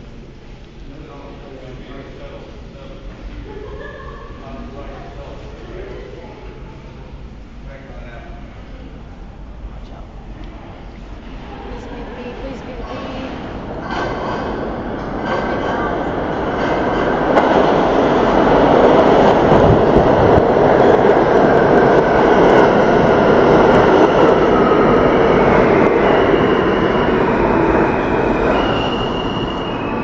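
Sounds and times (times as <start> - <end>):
subway train wheels rushing: 0.0 - 30.0
wheels squealing: 24.8 - 30.0.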